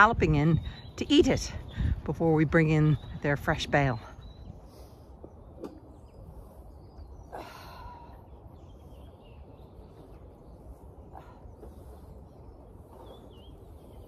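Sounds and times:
wind noise on microphone: 0.0 - 7.4.

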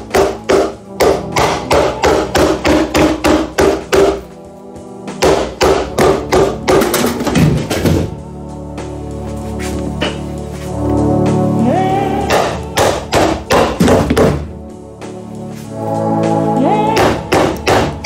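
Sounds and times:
rubber mallet hammering wood: 0.0 - 4.3, 5.1 - 8.1, 12.2 - 14.6, 16.9 - 18.0
background music: 0.0 - 18.0.

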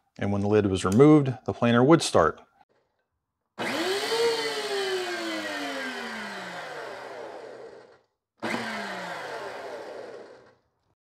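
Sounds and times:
planer motor whine: 3.6 - 10.6.

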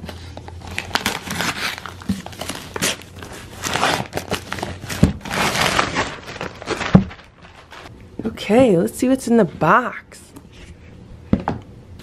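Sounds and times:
wrapping paper crinkling and tearing: 0.5 - 7.9.

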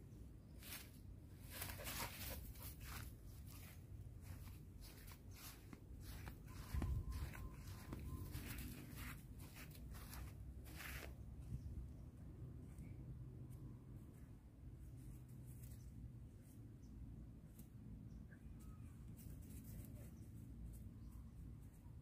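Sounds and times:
rustling of dry leaves: 0.5 - 11.2.

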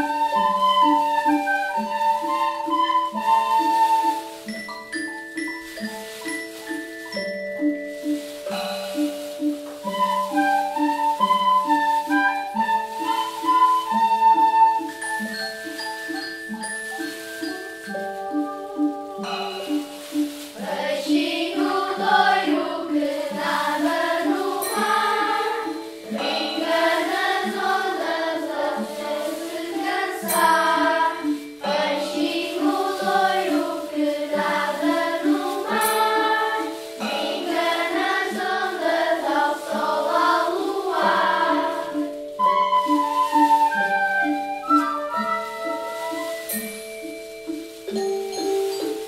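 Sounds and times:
children's choir singing: 0.0 - 4.4, 17.4 - 43.3
recorders playing melody: 0.0 - 49.0
xylophones playing low pattern: 0.6 - 10.7, 14.9 - 28.0, 41.5 - 49.0.

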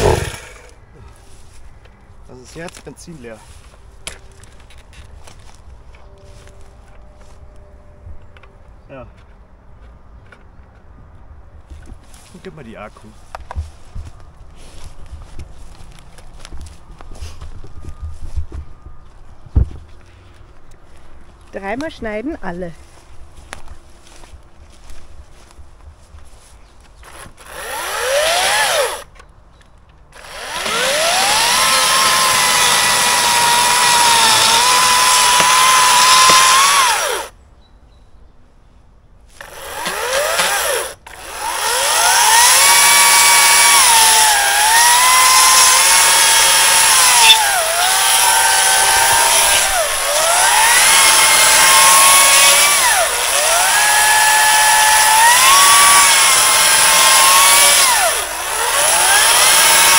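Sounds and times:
electric chainsaw cutting wood: 0.0 - 0.8, 27.0 - 29.1, 30.2 - 37.3, 39.4 - 59.9.

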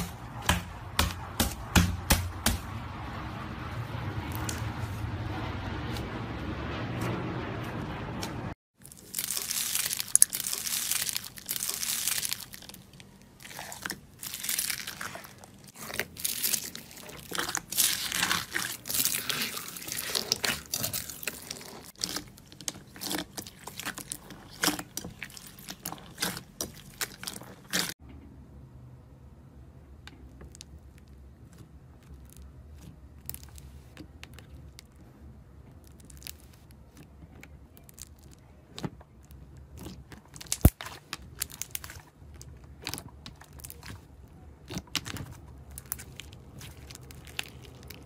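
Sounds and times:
slime crunching and crackling: 8.8 - 28.0, 30.1 - 48.0.

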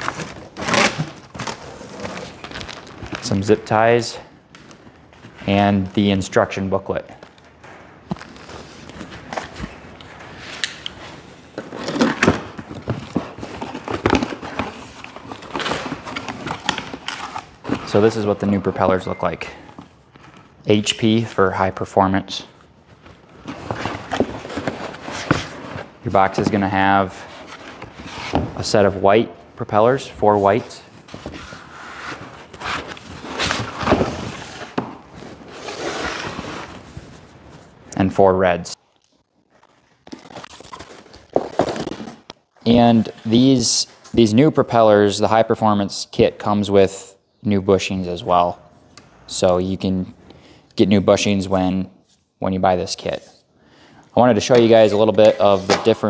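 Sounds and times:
cardboard and foam rustling: 0.0 - 3.5, 8.1 - 18.8, 22.8 - 28.8, 30.2 - 37.8, 39.5 - 44.1, 54.4 - 56.0
cardboard scraping and rustling: 23.1 - 28.6, 30.6 - 37.7.

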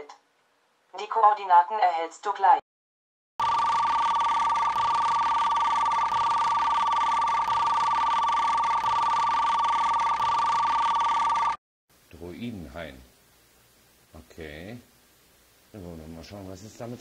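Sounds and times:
two-tone electronic signal: 3.4 - 11.6.

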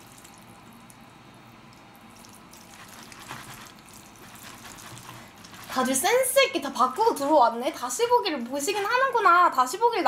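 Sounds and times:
chopsticks stirring sticky noodles: 2.6 - 6.4.

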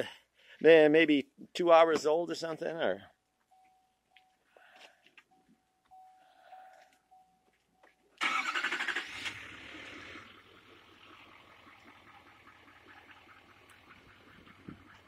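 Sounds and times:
diesel engine starting and idling: 8.2 - 15.0.

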